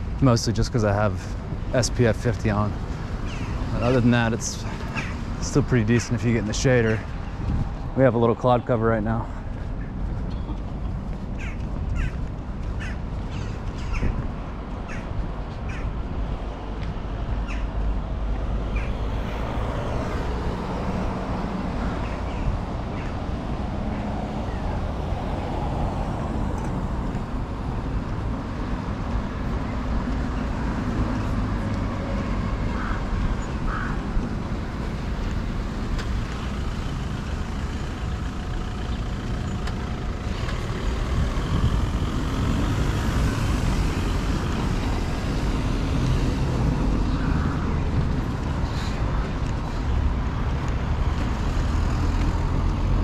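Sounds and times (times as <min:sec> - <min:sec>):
cars and buses passing: 0:00.0 - 0:53.0
bus passing close by: 0:34.1 - 0:53.0.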